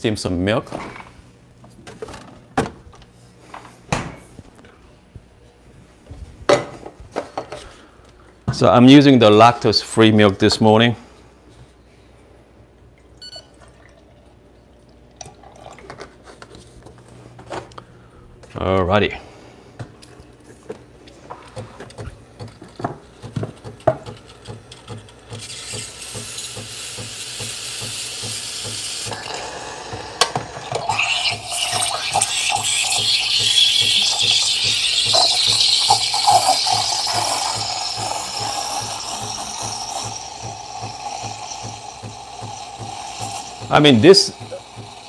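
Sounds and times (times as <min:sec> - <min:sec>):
steam wand hissing: 0:25.5 - 0:45.0.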